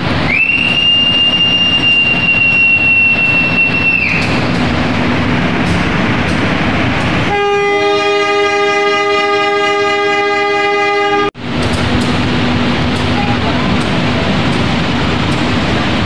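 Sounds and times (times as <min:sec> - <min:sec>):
train carriages rumbling: 0:00.0 - 0:16.0
high steady whistle tone: 0:00.2 - 0:04.6
locomotive horn blast: 0:07.2 - 0:11.4.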